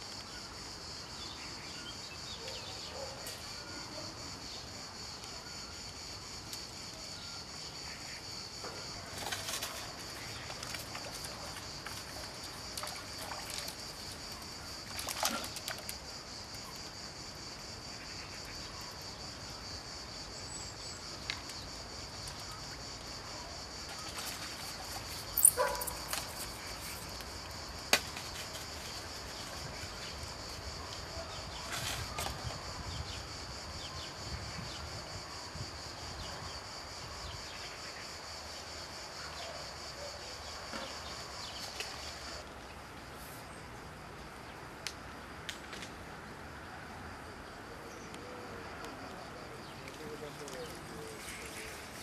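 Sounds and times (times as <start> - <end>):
insect chirring: 0.0 - 42.4
water splashes: 10.6 - 16.0.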